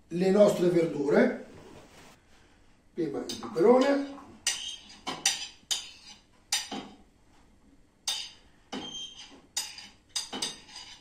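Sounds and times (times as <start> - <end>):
metal utensil clinking and scraping: 3.3 - 6.9, 8.1 - 11.0.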